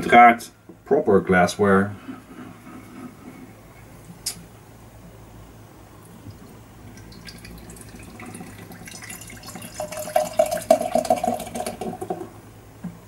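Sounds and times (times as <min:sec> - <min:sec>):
beer pouring into glass: 0:06.3 - 0:12.3.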